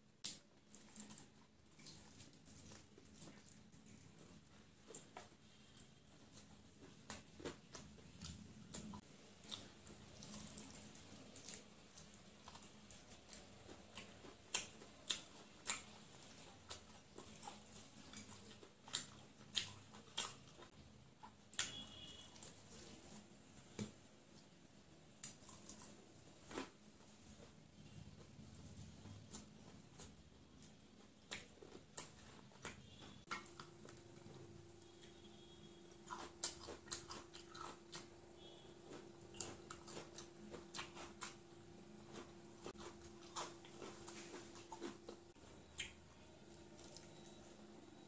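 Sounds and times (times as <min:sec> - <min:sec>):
crunching fried chicken: 0:25.1 - 0:47.7.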